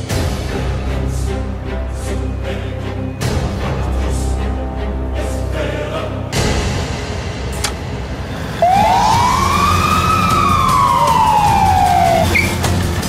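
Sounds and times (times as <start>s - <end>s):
background music with deep bass: 0.0s - 13.0s
siren-like wail: 8.6s - 12.6s.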